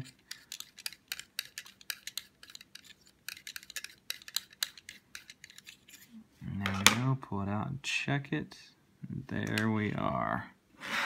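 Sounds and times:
needle grinding against sharpening stones: 0.0 - 6.2.

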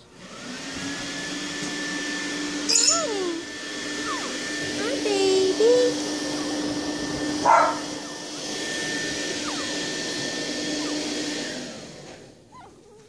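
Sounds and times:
household appliance whooshing hum: 0.0 - 12.6
puppies squeaking: 2.5 - 4.9, 6.2 - 13.0.

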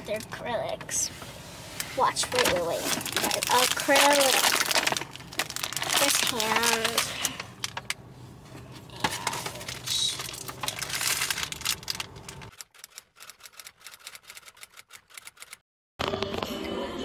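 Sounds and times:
paper bag rustling: 2.1 - 7.9, 9.1 - 12.5.

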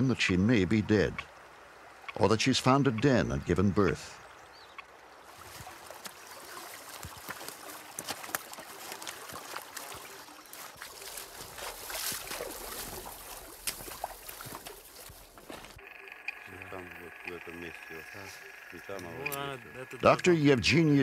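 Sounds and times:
stream running water: 0.0 - 21.0
boots splashing through stream: 5.2 - 15.8
footsteps knocking on rocks: 6.9 - 15.8.

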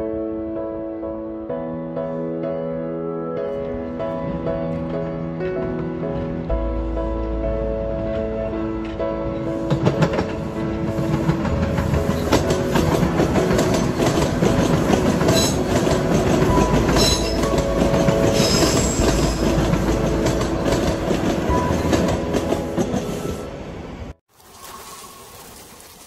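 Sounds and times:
subway train rumble: 3.4 - 24.2.

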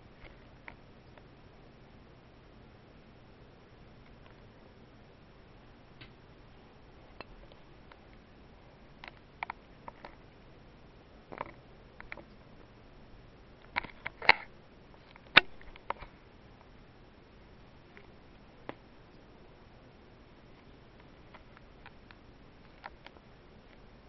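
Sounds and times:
small clicks and taps: 9.0 - 10.2, 11.3 - 12.4, 20.6 - 23.8.

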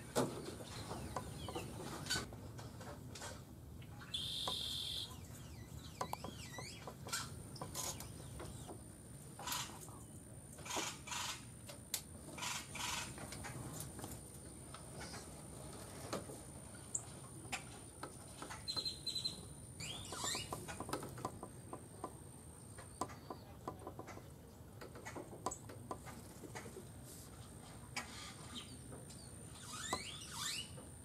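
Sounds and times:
bird calling: 3.8 - 8.8, 18.6 - 20.9
faint steady high tone: 4.0 - 5.3.

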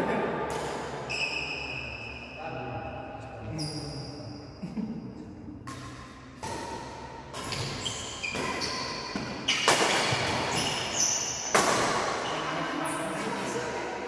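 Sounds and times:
racket hitting shuttlecock: 5.6 - 12.3.

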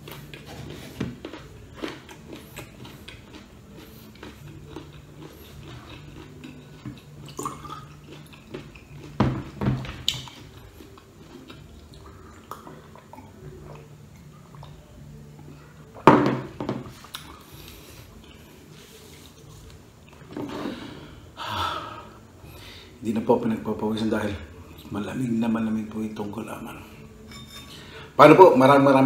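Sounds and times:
electric fan hum: 0.0 - 29.0
glass set down on table: 16.0 - 16.9
glass clinks: 27.3 - 27.8.

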